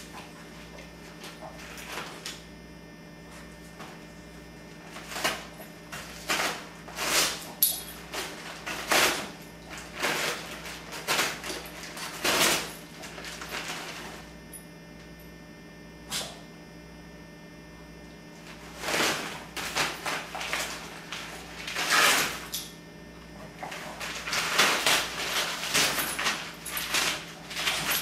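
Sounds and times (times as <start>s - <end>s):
low electrical hum: 0.0s - 28.0s
wrapping paper crinkling and tearing: 18.7s - 22.5s, 23.6s - 28.0s.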